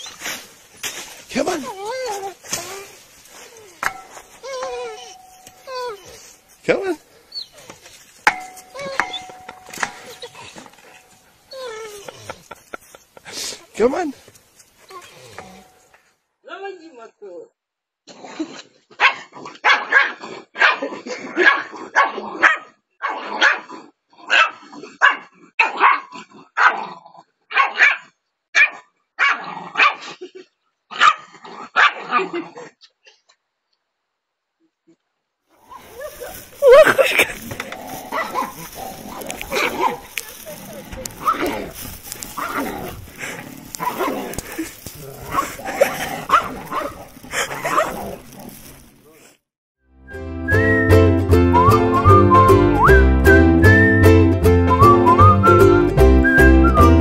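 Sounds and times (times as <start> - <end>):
small dog barking: 19.0 - 23.7, 24.3 - 26.9, 27.5 - 30.1, 30.9 - 32.2, 38.0 - 40.4, 46.2 - 48.3.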